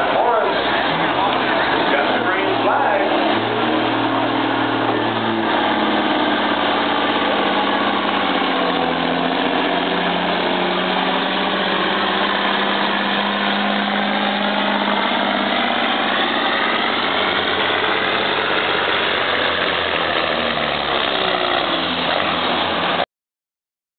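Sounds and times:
diesel truck engine under load: 0:00.0 - 0:23.1.

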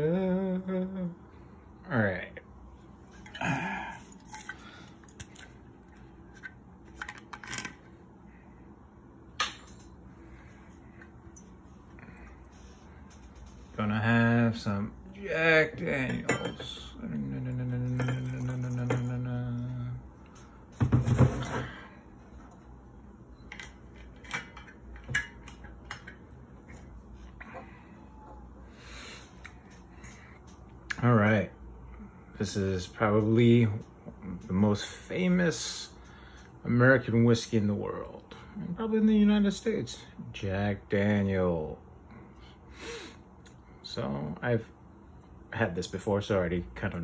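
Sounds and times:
glass bottle and glass clinking: 0:16.0 - 0:16.8, 0:17.8 - 0:19.2.

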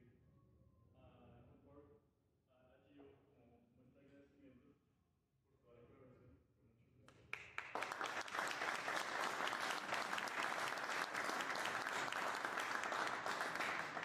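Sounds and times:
audience applauding: 0:07.4 - 0:14.0.

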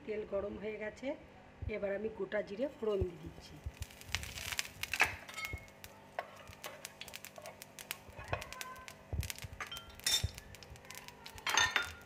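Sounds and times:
seeds crackling in hot oil: 0:02.8 - 0:12.0.

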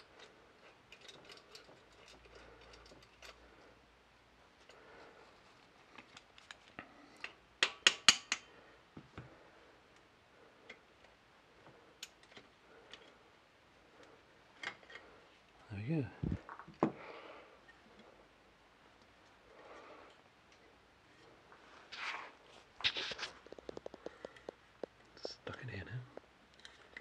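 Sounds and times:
light metallic clicks and clinks: 0:00.0 - 0:03.5.

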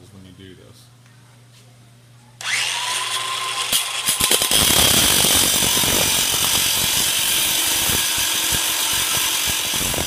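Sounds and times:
angle grinder grinding steel: 0:02.4 - 0:10.0.

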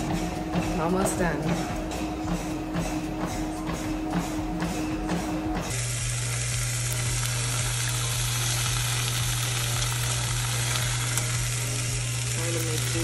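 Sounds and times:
fish sizzling in a pan: 0:05.7 - 0:13.0.

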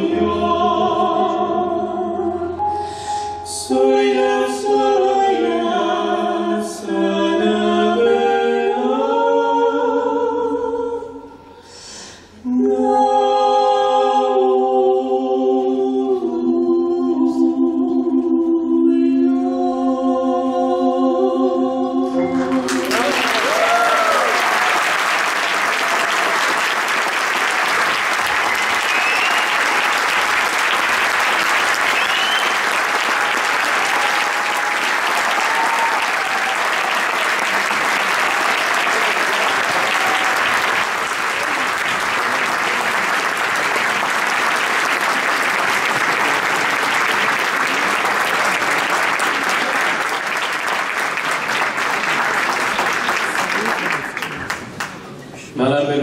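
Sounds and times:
audience applauding: 0:22.4 - 0:55.2.

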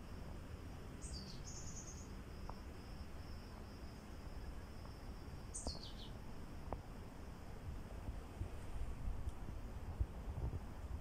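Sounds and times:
high-pitched insect trill: 0:00.0 - 0:07.6.

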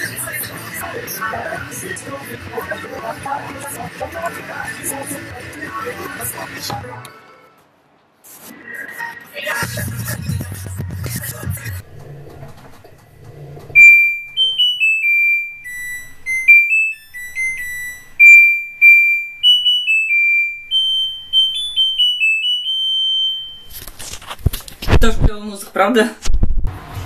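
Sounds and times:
washing machine beeping tune: 0:13.8 - 0:23.8.

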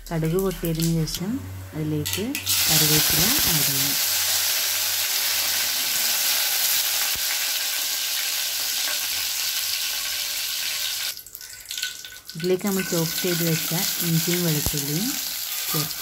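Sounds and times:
leaves sizzling in hot oil: 0:02.3 - 0:16.0.

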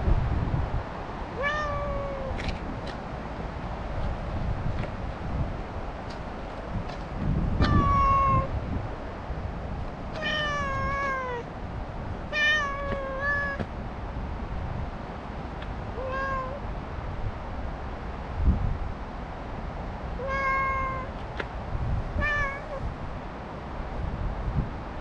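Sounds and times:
cat meowing: 0:01.4 - 0:02.4, 0:07.6 - 0:08.5, 0:10.2 - 0:11.5, 0:12.3 - 0:13.7, 0:15.9 - 0:16.6, 0:20.2 - 0:21.2, 0:22.2 - 0:22.9.

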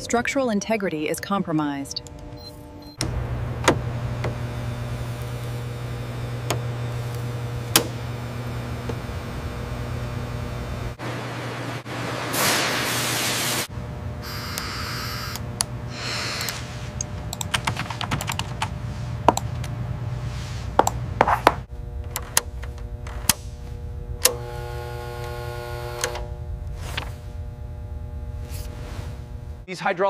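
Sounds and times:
hum of held tones: 0:01.9 - 0:11.0, 0:13.8 - 0:17.1, 0:21.7 - 0:29.7
computer keyboard typing: 0:17.2 - 0:18.8.

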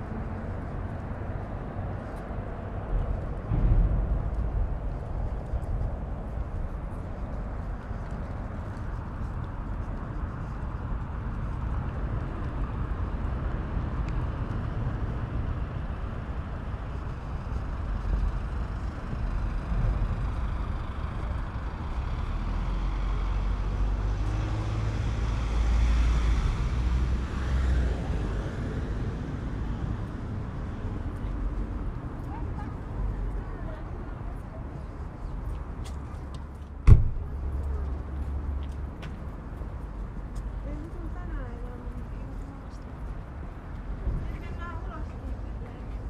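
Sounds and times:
wind on microphone: 0:00.0 - 0:35.8
road traffic: 0:00.0 - 0:46.0
vehicle passing: 0:11.4 - 0:46.0.

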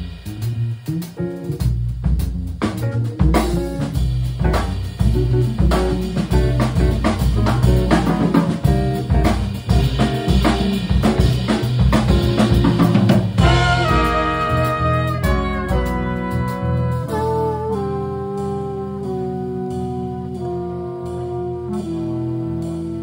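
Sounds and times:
bass: 0:00.0 - 0:23.0
drum kit groove: 0:00.0 - 0:23.0
horn section holding chords: 0:13.4 - 0:23.0.

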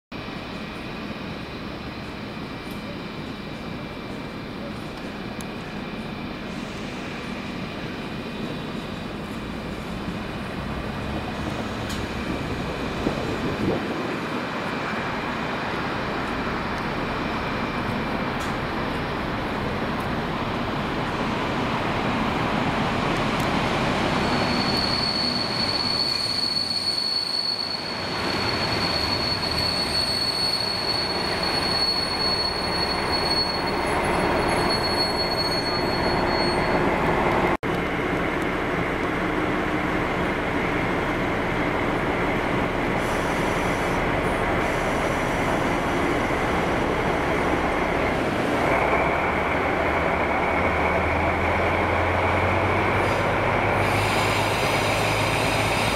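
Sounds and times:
diesel locomotives rumbling past: 0:00.2 - 0:55.9
high-pitched wheel squeal: 0:24.1 - 0:37.1.

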